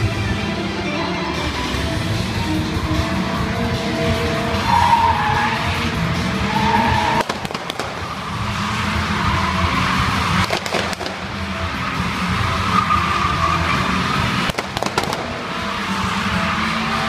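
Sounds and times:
car engines revving: 0.0 - 17.0
tyre squeal: 4.5 - 7.3, 12.1 - 14.5
sharp cracks: 7.0 - 8.2, 10.2 - 11.4, 14.4 - 15.6.

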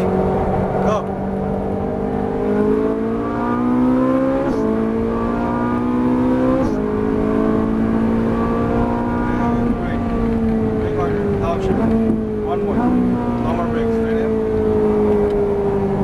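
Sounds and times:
car engine accelerating: 0.0 - 16.0.

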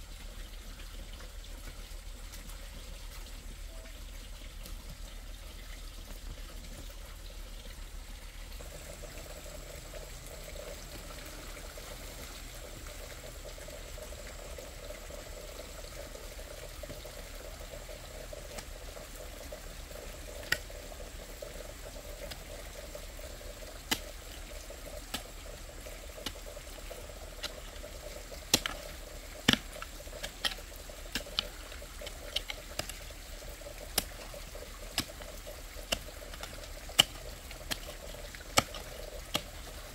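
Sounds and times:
liquid running or bubbling: 0.0 - 39.9.

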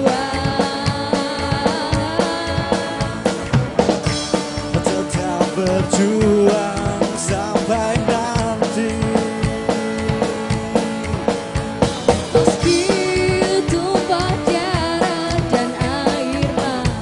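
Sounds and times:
drum kit beat: 0.0 - 17.0
electric guitar: 0.0 - 17.0
man singing: 4.7 - 10.5, 12.6 - 13.6.

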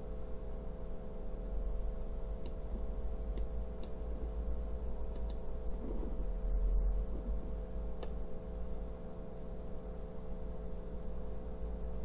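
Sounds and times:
electrical hum with low rumble: 0.0 - 12.0
computer mouse clicks: 2.4 - 2.6, 5.1 - 6.0.

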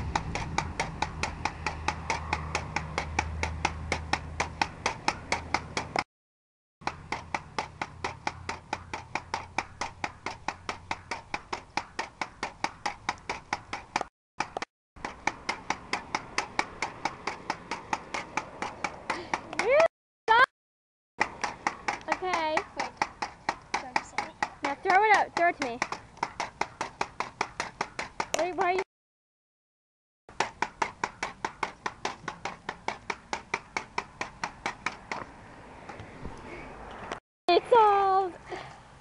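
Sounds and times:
pogo stick knocking: 0.0 - 6.0, 6.8 - 20.5, 21.2 - 28.8, 30.3 - 35.3.

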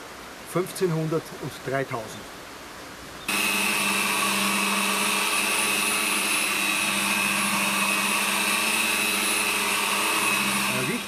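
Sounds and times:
angle grinder grinding stone: 3.3 - 11.0.

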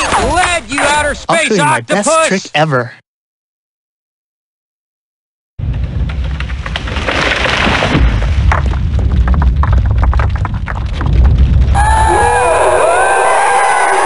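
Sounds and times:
crackling and popping: 5.6 - 12.6
deep rumble with crackling: 5.6 - 13.4.

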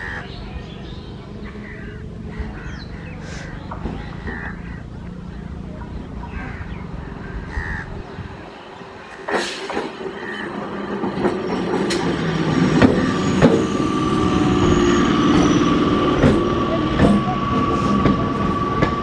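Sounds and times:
electric train running past: 3.7 - 19.0
high train whine: 3.7 - 19.0
wheels clacking over rail joints: 9.1 - 19.0.

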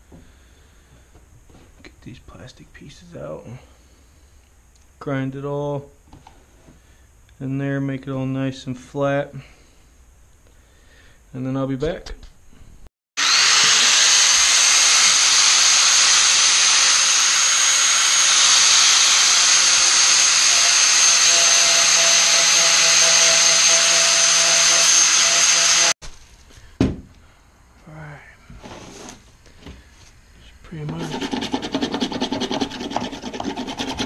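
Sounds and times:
angle grinder grinding plastic: 13.2 - 25.9, 30.8 - 34.0.

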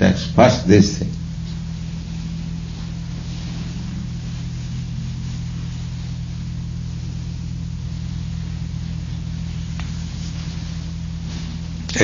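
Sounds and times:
tape hum and hiss: 0.0 - 12.0.

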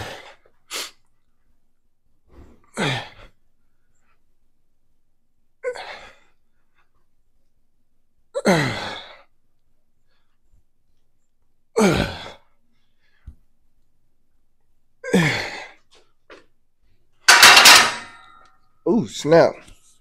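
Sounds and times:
metal clang ringing: 17.3 - 18.5.

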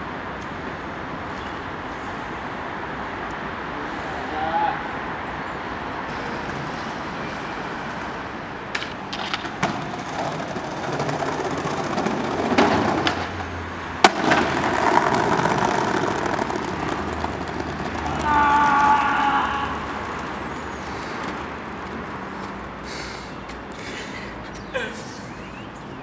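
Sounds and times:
skateboard clicks: 6.1 - 23.7
skateboard wheels rolling on tiles: 6.1 - 24.6
skateboard slamming down: 8.7 - 19.0.

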